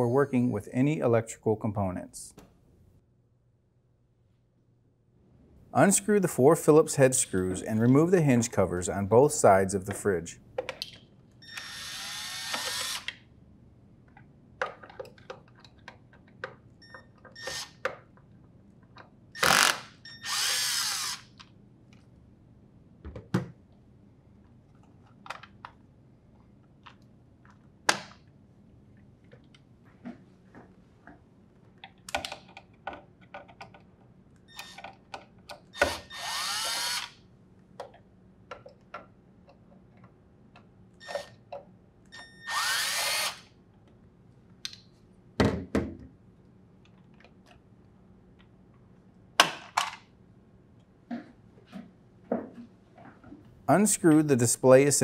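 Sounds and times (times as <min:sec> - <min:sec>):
cordless drill spinning screws: 0:11.4 - 0:13.1, 0:17.4 - 0:17.8, 0:19.4 - 0:21.4, 0:35.8 - 0:37.2, 0:42.4 - 0:43.5.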